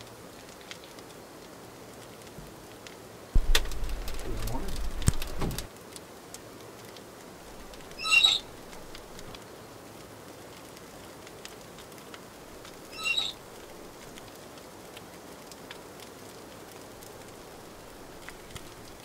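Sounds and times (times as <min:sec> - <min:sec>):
wood fire crackling: 0:00.0 - 0:19.0
bird calling: 0:03.4 - 0:05.7, 0:07.6 - 0:09.3, 0:12.7 - 0:13.9.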